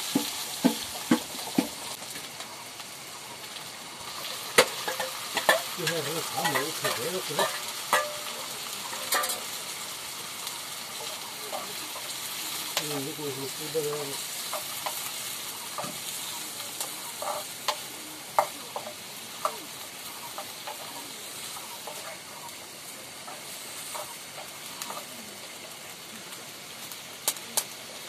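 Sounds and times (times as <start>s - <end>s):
food sizzling in a pan: 0.0s - 28.0s
metal spoon scraping a pan: 4.1s - 9.6s, 13.4s - 25.1s.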